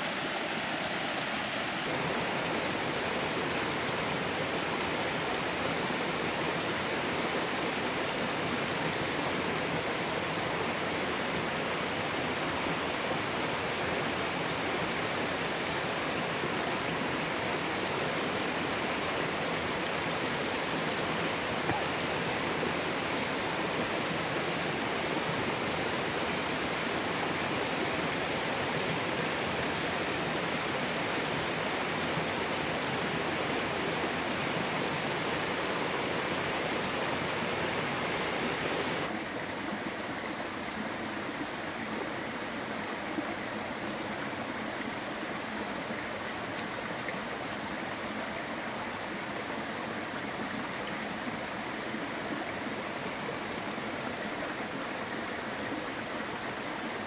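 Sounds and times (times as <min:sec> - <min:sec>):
water flowing: 0:00.0 - 0:57.0.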